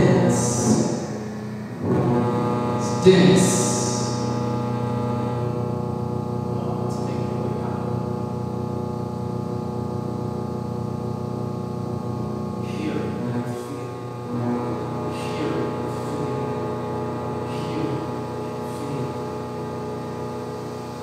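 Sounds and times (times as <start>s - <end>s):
layered electronic drone: 0.0s - 21.0s.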